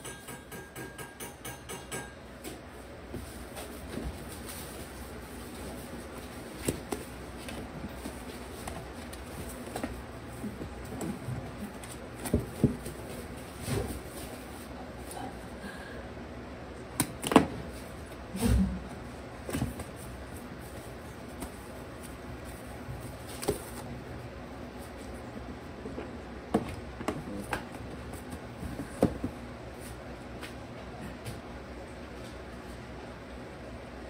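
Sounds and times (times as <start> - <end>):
steady background hum: 0.0 - 34.0
puppies scrambling on newspaper: 3.2 - 14.8.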